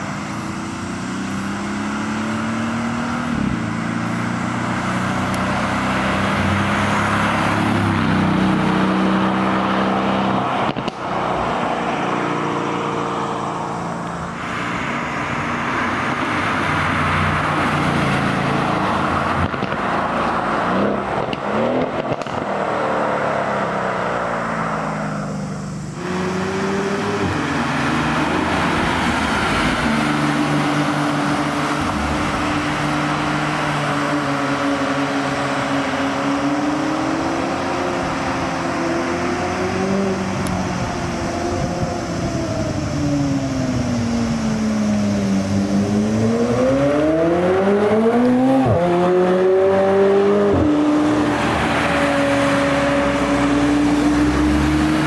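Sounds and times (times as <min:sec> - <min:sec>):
car engine accelerating: 0:00.0 - 0:55.0
sports car engines driving past: 0:00.0 - 0:55.0.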